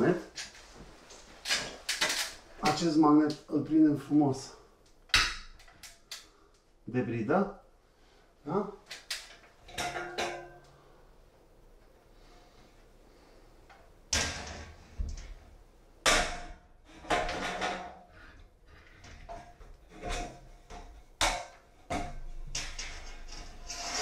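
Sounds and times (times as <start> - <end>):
rustling scrape: 22.8 - 24.0.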